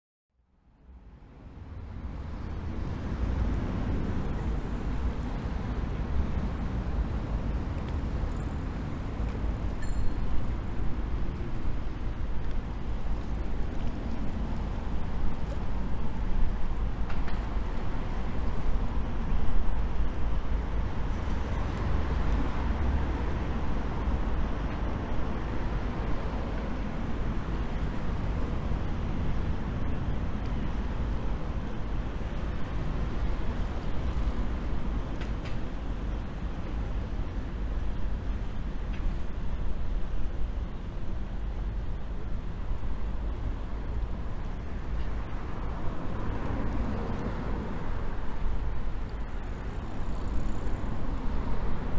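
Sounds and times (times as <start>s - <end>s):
road traffic rumble: 0.9s - 51.9s.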